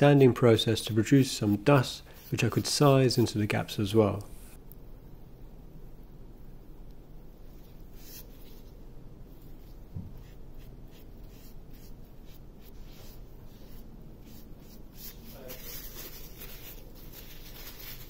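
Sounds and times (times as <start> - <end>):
cloth wiping strokes: 0.4 - 3.4, 7.5 - 18.0.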